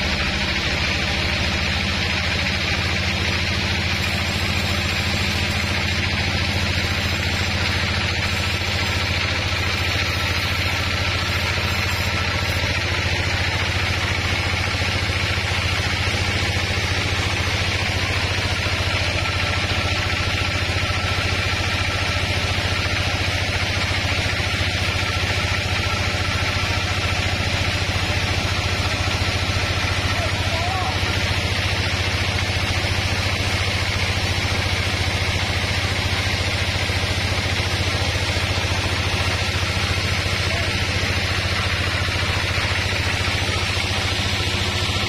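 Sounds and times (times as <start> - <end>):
sawmill engine idling: 0.0 - 45.0.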